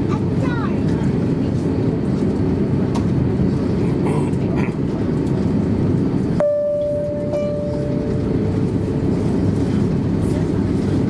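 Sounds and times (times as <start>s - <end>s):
aircraft cabin rumble: 0.0s - 11.0s
steady electronic tone: 6.4s - 9.2s.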